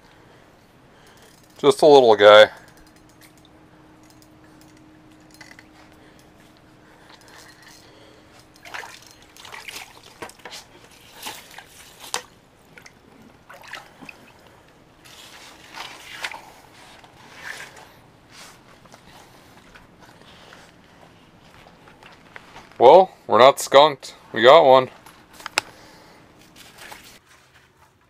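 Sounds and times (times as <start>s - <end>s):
faint steady hum: 0.0s - 27.2s
water splashing and sloshing: 3.0s - 22.8s, 25.0s - 27.2s.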